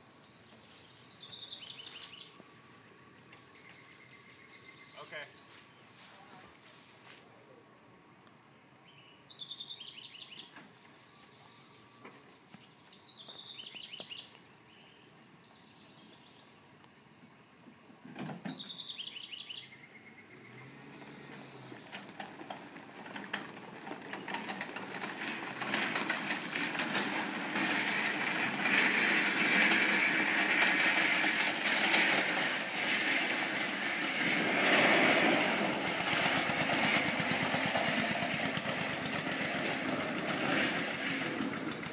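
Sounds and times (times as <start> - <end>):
tractor engine firing rapidly: 22.0 - 41.9.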